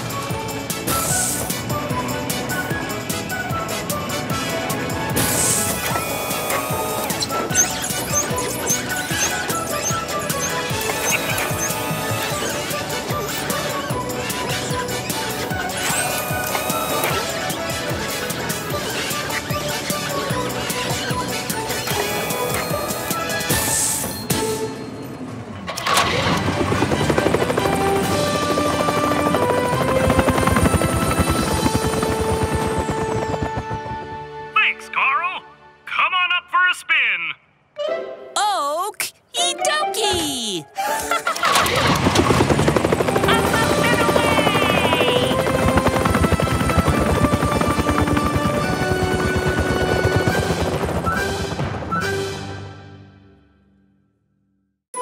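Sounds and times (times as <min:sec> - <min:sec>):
cartoon helicopter rotor chopping: 0:00.0 - 0:23.5, 0:25.8 - 0:34.3, 0:41.2 - 0:51.8
background music: 0:00.0 - 0:53.8.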